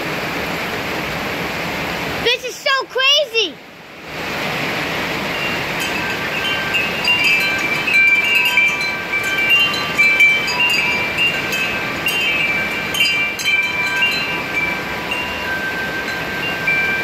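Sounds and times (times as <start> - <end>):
rain hissing: 0.0 - 17.0
wind chimes ringing: 5.2 - 17.0.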